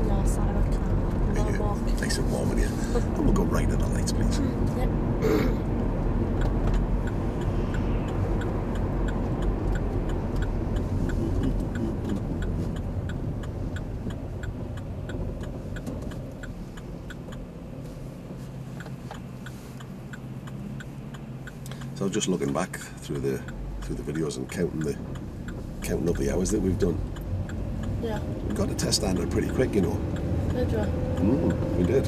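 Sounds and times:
car engine and road noise: 0.0 - 32.0
faint regular ticking: 5.7 - 32.0.

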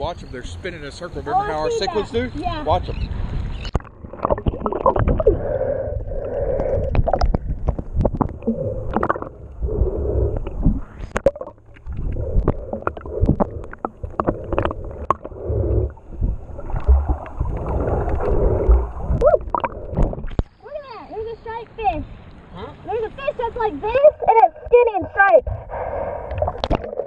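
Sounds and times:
underwater gurgling and sloshing: 1.3 - 27.0
low rumble: 2.8 - 20.6.

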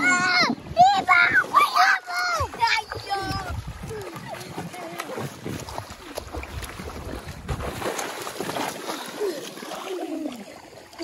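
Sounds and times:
water splashing from swimming: 0.0 - 11.0
wind noise on microphone: 2.4 - 8.5.

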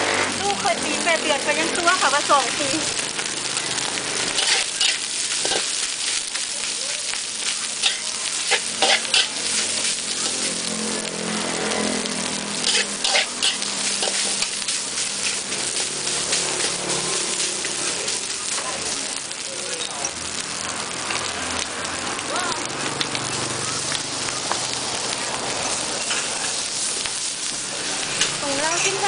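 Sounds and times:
rice sizzling in a wok: 0.0 - 29.0
metal spatula scraping a pan: 4.3 - 5.9, 7.4 - 10.0, 12.6 - 16.8, 28.0 - 29.0.

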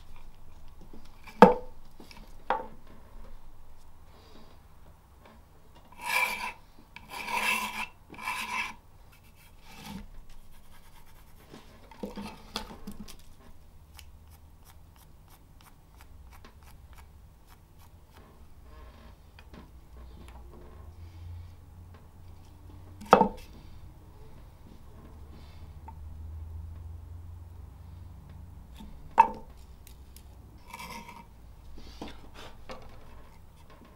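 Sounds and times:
metal tool scratching wood: 5.9 - 11.4, 30.6 - 31.3
light scraping: 5.9 - 13.6, 28.7 - 33.9.

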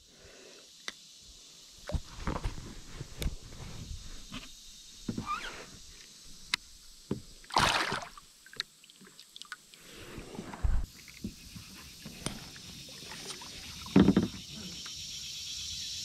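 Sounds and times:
fish splashing in water: 7.4 - 9.6.

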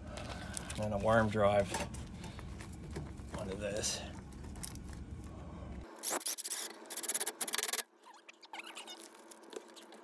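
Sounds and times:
foil tape pulled off roll: 6.0 - 7.8.

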